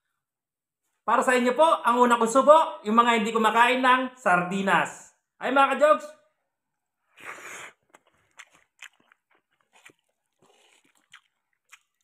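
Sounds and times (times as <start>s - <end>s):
person chewing with wet mouth clicks: 7.7s - 12.0s.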